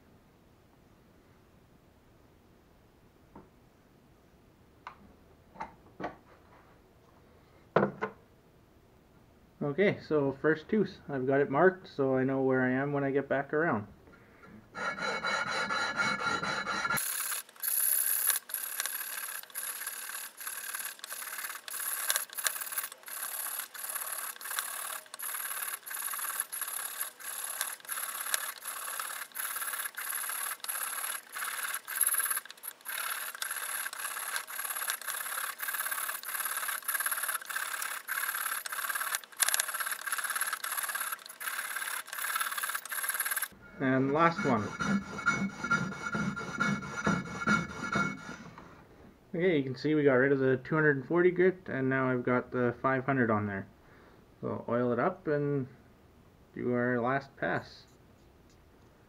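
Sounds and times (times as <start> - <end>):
saw blade rasping on sandpaper: 14.8 - 48.6.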